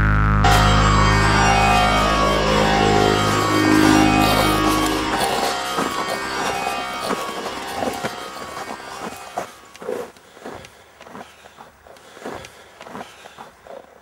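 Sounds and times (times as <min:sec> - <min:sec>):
guitar rock music: 0:00.4 - 0:09.7.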